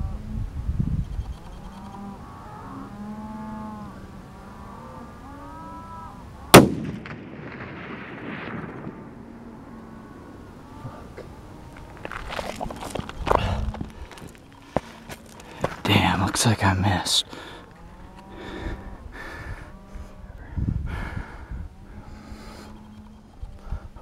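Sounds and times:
rifle shot with echo: 6.5 - 9.4.

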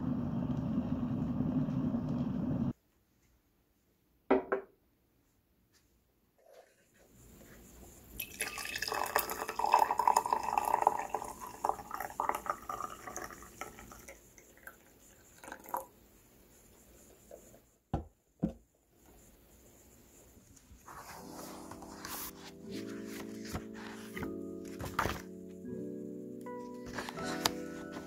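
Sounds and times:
tea pouring into glass: 8.2 - 15.9.

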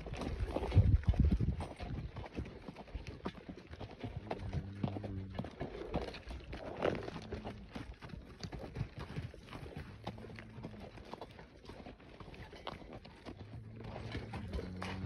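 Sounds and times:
horse hooves on rocky dirt: 0.0 - 15.0
low steady hum: 13.5 - 15.0.

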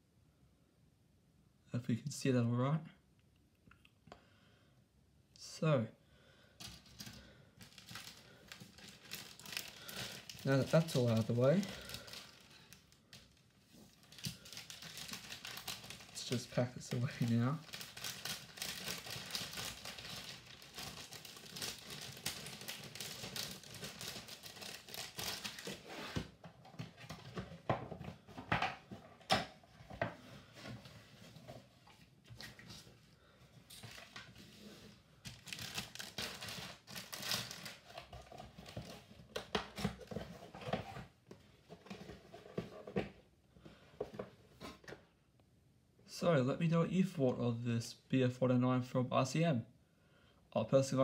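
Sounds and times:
plastic bags crinkling: 6.6 - 26.1, 35.3 - 39.0.

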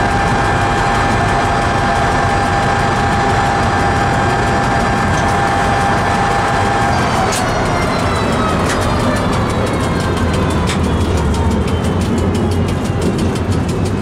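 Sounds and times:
high whine: 0.0 - 14.0
train wheels rumbling on rails: 0.0 - 14.0
sharp clicks: 3.1 - 14.0.

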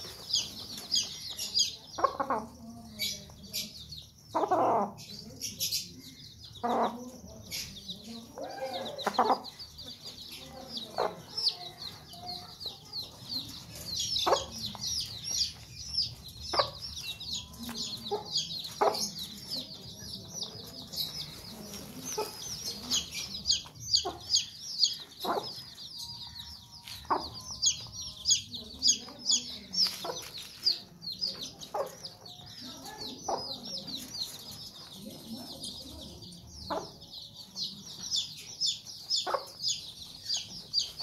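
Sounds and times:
hen clucking: 0.0 - 3.7, 4.3 - 5.3, 6.6 - 25.9, 38.2 - 41.0
chicks peeping: 0.0 - 41.0.

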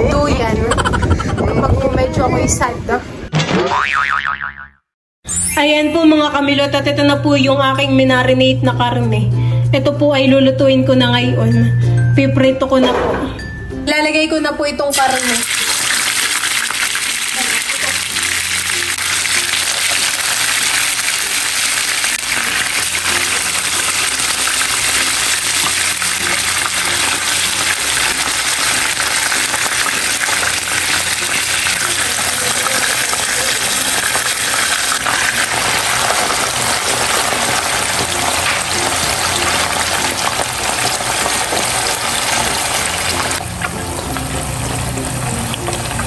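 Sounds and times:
meat sizzling in hot oil: 15.0 - 46.0.

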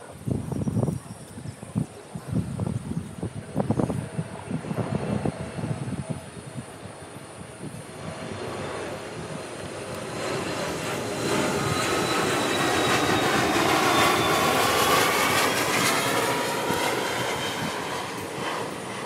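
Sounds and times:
airplane flying over: 0.0 - 19.0.

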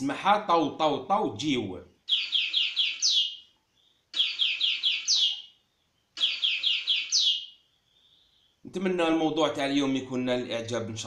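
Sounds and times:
goldfinch singing through speakers: 2.1 - 5.6, 6.2 - 7.7.

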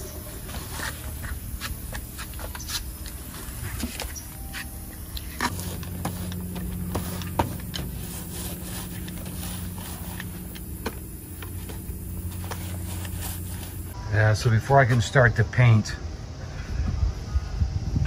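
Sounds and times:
machine humming: 4.2 - 14.2.

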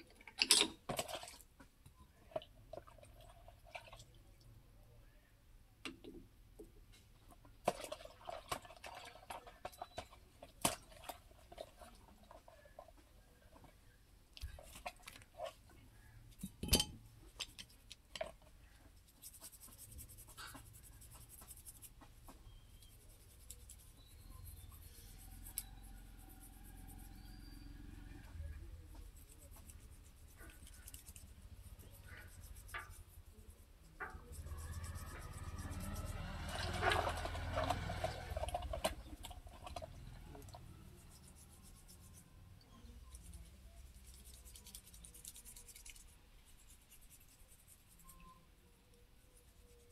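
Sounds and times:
faint low hum: 8.3 - 49.9
scraping and rubbing metal parts: 9.8 - 48.4.

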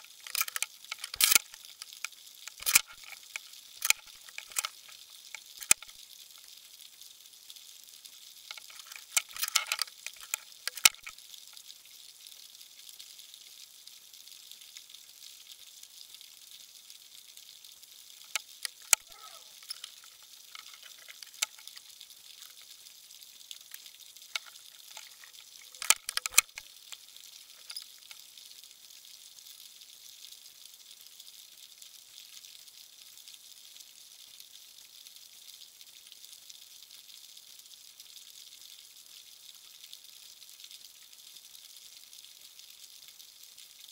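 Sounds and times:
sharp clicks and crackles: 0.0 - 6.0, 8.5 - 11.2, 18.2 - 22.7, 23.6 - 28.2.

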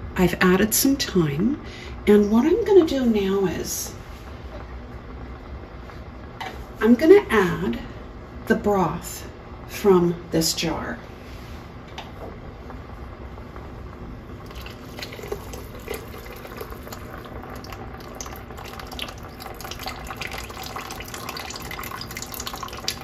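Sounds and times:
liquid trickling into pot: 14.4 - 23.0.

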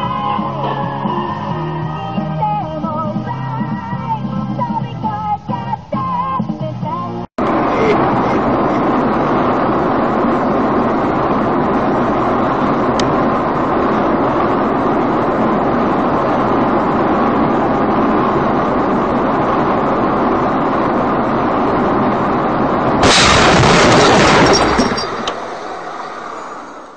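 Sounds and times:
car road and engine noise: 0.0 - 26.9
collision crash: 23.0 - 26.9.

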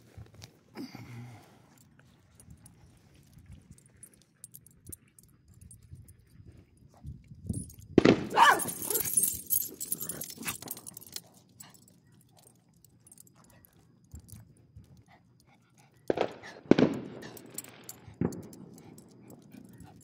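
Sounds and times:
dog collar tags jangling: 1.7 - 20.0.

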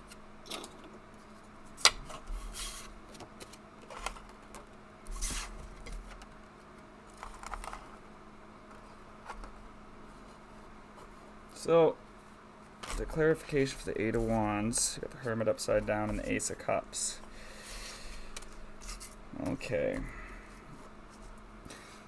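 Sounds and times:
cards sliding and rustling: 1.2 - 4.3, 5.1 - 6.2, 17.6 - 20.0.

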